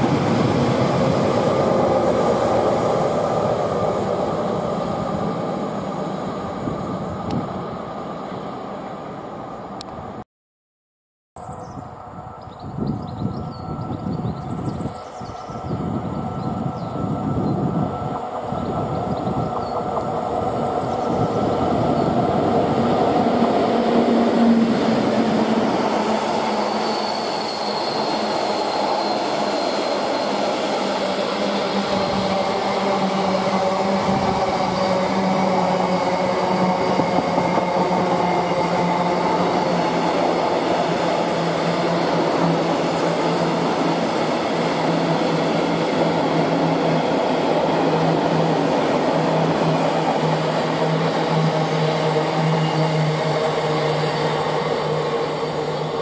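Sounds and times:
steady train drone: 0.0 - 10.2, 11.4 - 56.0.

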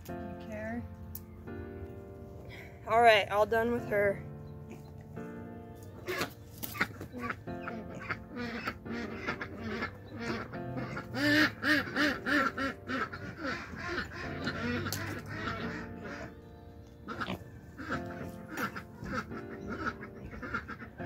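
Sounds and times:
background music: 0.0 - 21.0
duck quacking: 6.0 - 16.4, 17.0 - 21.0.

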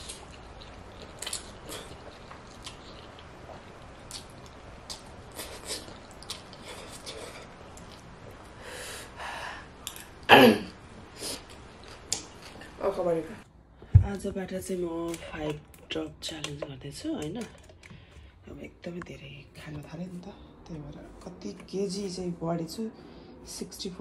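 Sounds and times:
chewing with wet smacks: 0.0 - 8.4.

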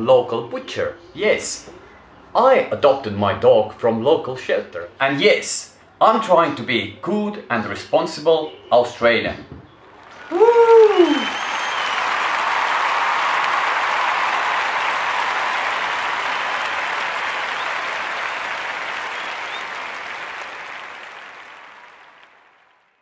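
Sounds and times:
crowd applauding: 9.8 - 23.0.

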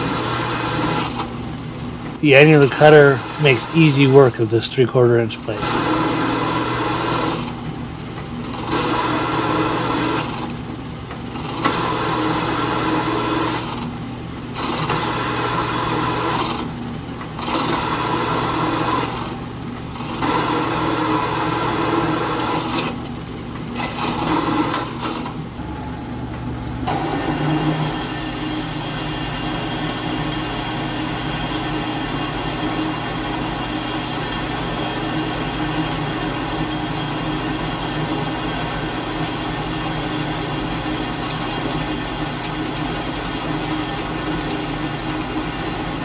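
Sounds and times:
drill press motor hum: 0.0 - 46.0
metal cutting noise: 2.2 - 7.6, 8.3 - 10.5, 23.8 - 46.0.

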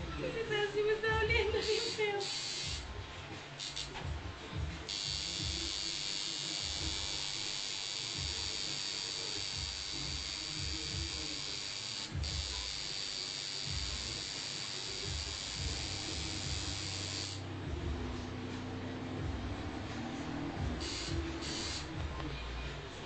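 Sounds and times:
electric tattoo machine buzzing: 1.6 - 2.9, 3.6 - 4.0, 4.8 - 17.5, 20.4 - 22.0.

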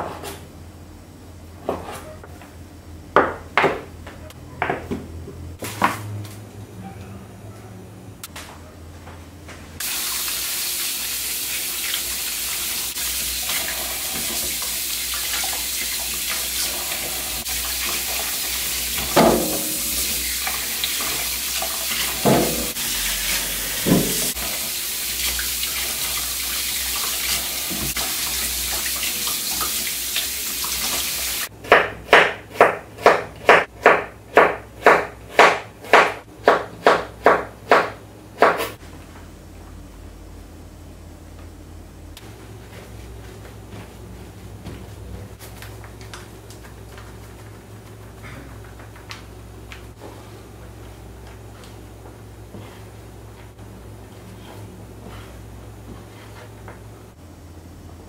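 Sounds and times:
tap water running into sink: 9.8 - 31.5.

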